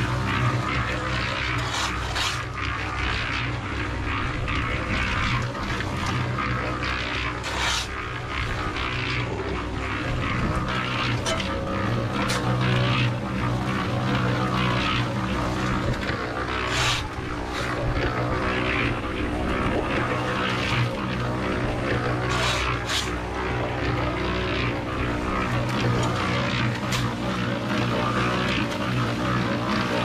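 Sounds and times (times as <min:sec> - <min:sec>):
concrete grinding rattle: 0:00.0 - 0:30.0
concrete mixer motor hum: 0:00.0 - 0:30.0.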